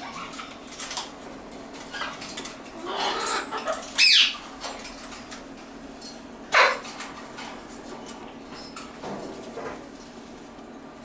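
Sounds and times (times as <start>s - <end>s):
soft cockatoo chatter: 1.8s - 4.4s
cockatoo squawks: 2.8s - 4.4s.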